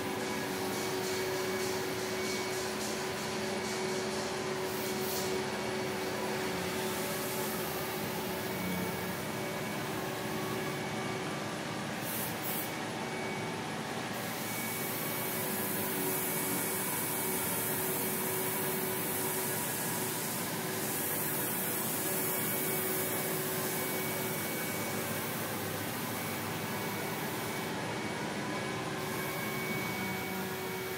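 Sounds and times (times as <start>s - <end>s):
steady motor hum: 0.0s - 30.9s
airbrush hissing air: 19.0s - 22.3s.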